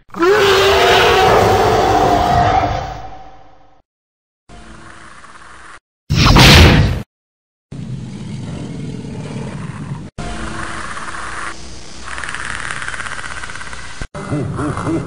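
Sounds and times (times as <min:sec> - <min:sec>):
creature roar: 0:00.1 - 0:03.3.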